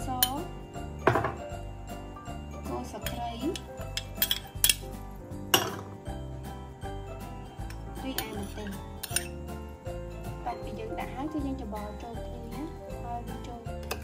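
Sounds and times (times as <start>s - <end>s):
background music: 0.0s - 14.0s
metal spoon clinking on ceramic bowls: 3.0s - 4.9s, 5.5s - 6.0s, 7.7s - 9.4s, 13.8s - 14.0s.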